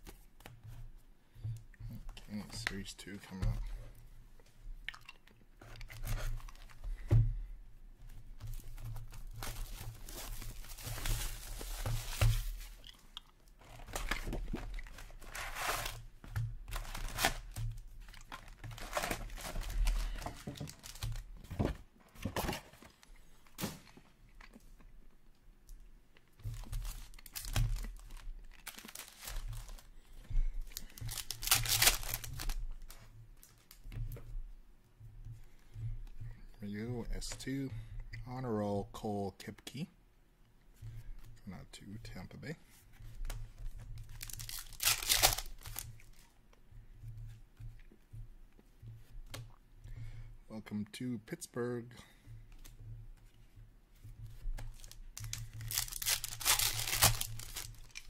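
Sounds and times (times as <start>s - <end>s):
wrappers crinkling: 8.4s - 16.1s, 16.7s - 21.4s, 26.2s - 33.8s, 43.7s - 46.4s, 54.3s - 58.0s
card packs torn open: 16.7s - 21.3s, 26.5s - 29.9s, 30.7s - 32.9s, 44.2s - 45.8s, 54.8s - 58.0s.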